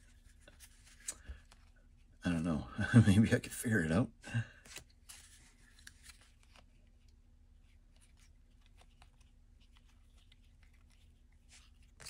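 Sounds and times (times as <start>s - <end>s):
trading cards rustling: 4.6s - 12.0s.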